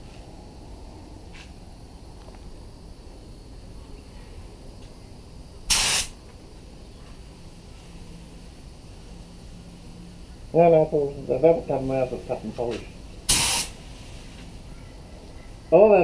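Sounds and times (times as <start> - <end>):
spray gun air hiss: 5.7 - 6.2, 13.2 - 14.6.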